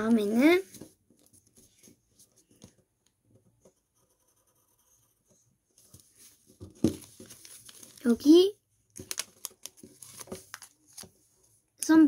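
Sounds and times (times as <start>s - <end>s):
pencil ticks and paper scratches: 1.2s - 6.1s.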